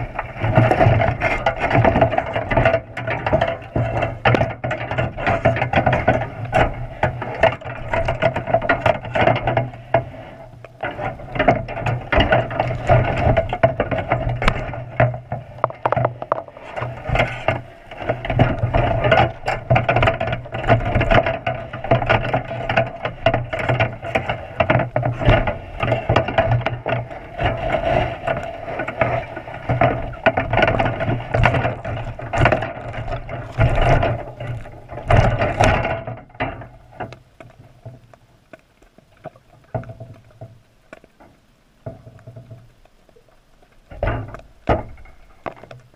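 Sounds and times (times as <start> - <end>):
wire trap knocking underwater: 10.8 - 38.0, 43.9 - 45.8.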